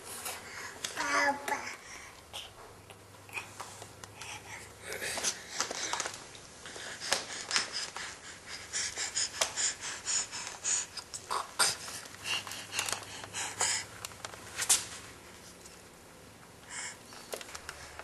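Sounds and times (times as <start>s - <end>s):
baby breathing: 4.2s - 14.1s.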